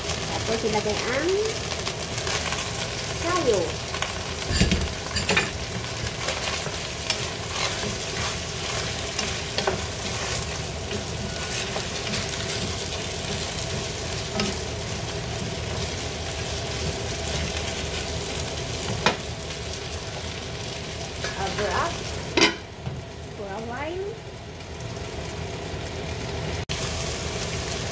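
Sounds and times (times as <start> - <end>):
food sizzling in a pan: 0.0 - 27.9
utensil scraping pan: 4.4 - 14.6.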